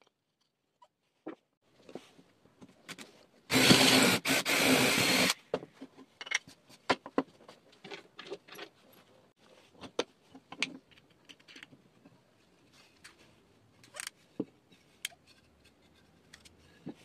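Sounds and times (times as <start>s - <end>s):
cordless drill boring wood: 3.5s - 5.4s.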